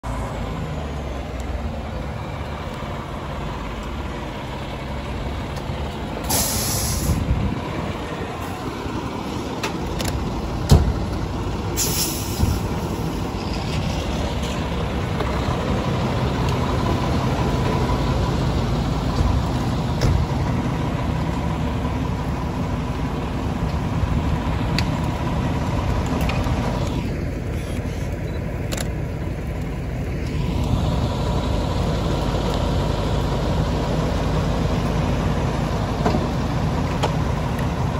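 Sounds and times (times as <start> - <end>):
fire engine running: 0.0 - 37.9
air brakes hissing: 6.2 - 7.3, 11.7 - 13.3, 27.5 - 28.2.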